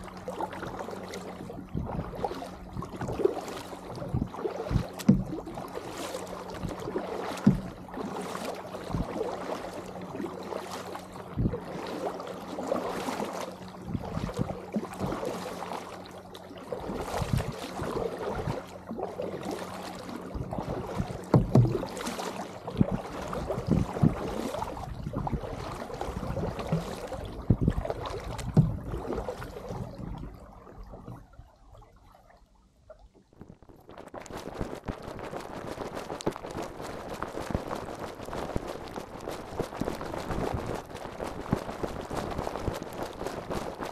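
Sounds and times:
kayak paddle splashing in water: 0:00.0 - 0:31.2, 0:33.4 - 0:43.9
paddle thumps: 0:04.0 - 0:09.2, 0:21.0 - 0:24.3, 0:26.6 - 0:28.9.

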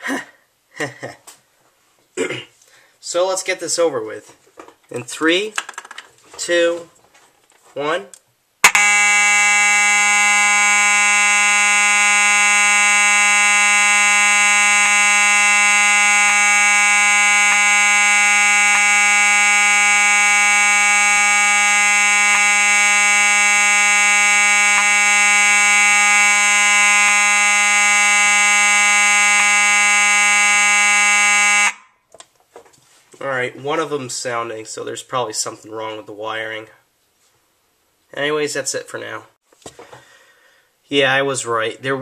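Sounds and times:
fire alarm horn: 0:08.6 - 0:32.0.

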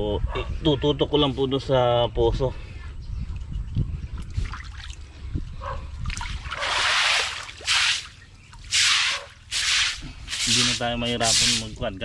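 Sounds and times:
water gushing and splashing: 0:06.1 - 0:11.6.

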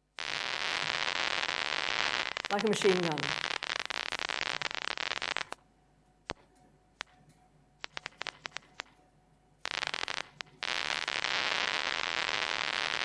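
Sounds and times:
nerve impulse clicks crackling: 0:02.2 - 0:05.6, 0:06.3 - 0:09.0.

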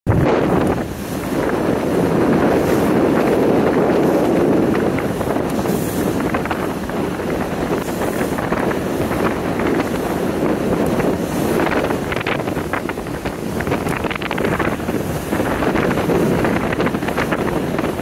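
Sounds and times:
motorboat running: 0:00.1 - 0:18.0
water splashing against hull: 0:00.1 - 0:18.0
wind rushing over microphone: 0:00.1 - 0:18.0.

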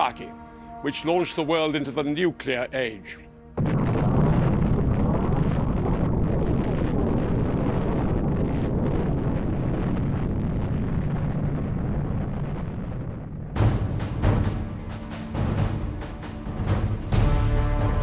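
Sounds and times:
explosion deep rumbling roar: 0:03.6 - 0:15.8.

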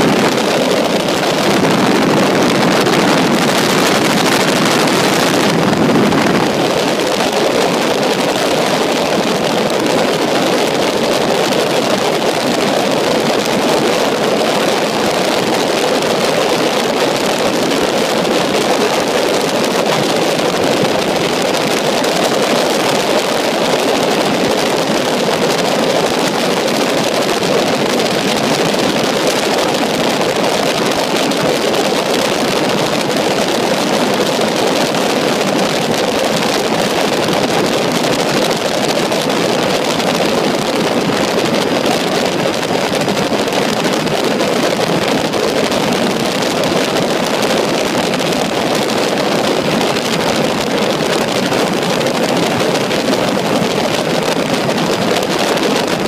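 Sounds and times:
wind rushing: 0:00.0 - 0:07.3
helicopter engine: 0:00.0 - 0:08.4.

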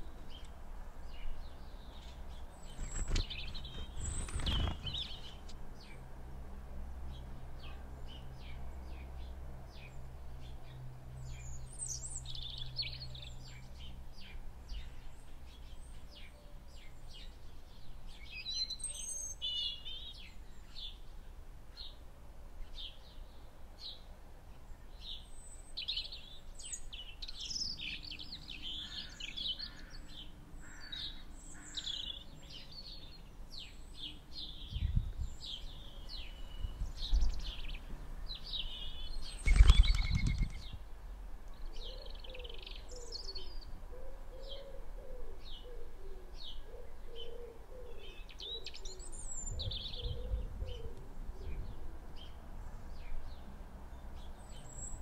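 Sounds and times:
small birds chirping: 0:00.0 - 0:06.1, 0:22.6 - 0:43.8, 0:45.3 - 0:55.0
wings fluttering: 0:02.6 - 0:05.6, 0:39.3 - 0:40.8
dove cooing: 0:43.9 - 0:48.6, 0:49.6 - 0:52.0.

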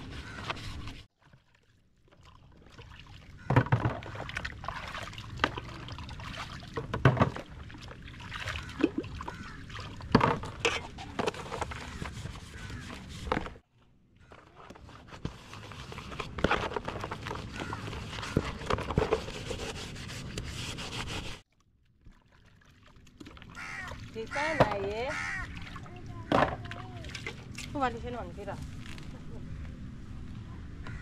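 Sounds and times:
water pouring and splashing: 0:01.0 - 0:13.4, 0:21.5 - 0:29.1.

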